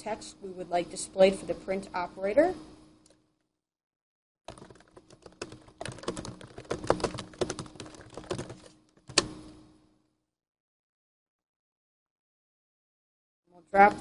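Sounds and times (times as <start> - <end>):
computer keyboard typing: 4.5 - 9.3.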